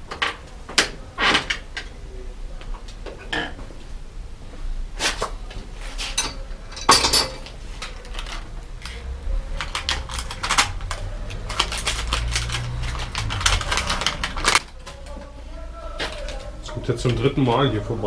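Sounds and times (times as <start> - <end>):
metal bicycle parts clattering: 6.0 - 15.0.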